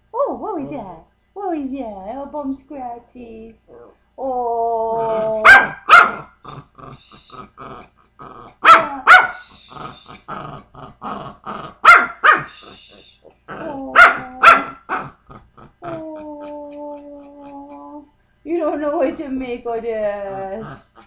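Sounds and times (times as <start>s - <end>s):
dog growly grumbles: 3.7s - 5.4s, 6.4s - 11.9s, 12.6s - 18.1s, 20.2s - 21.0s
dog barking: 5.4s - 6.3s, 8.6s - 9.5s, 11.8s - 12.6s, 13.9s - 15.2s.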